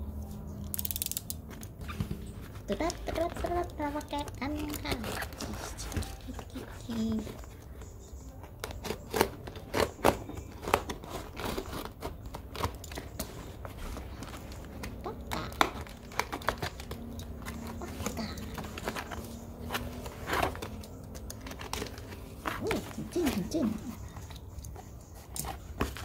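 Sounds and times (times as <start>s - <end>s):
tape crinkling: 0.3s - 26.0s
cardboard tearing: 2.0s - 7.5s, 8.5s - 23.8s.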